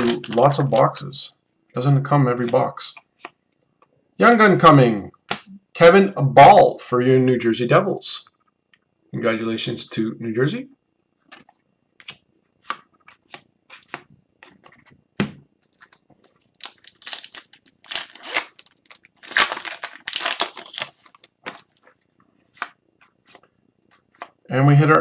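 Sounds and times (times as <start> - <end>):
card pack wrapper tearing: 0.0 - 1.0, 15.8 - 21.9
cards being handled: 11.2 - 15.0, 15.6 - 24.4.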